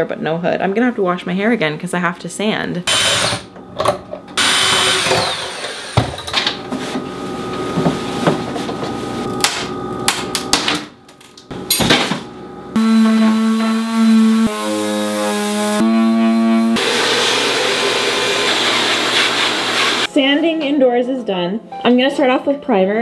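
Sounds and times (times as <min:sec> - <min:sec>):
electric sander hissing: 0:12.8 - 0:20.1
background music: 0:20.1 - 0:23.0.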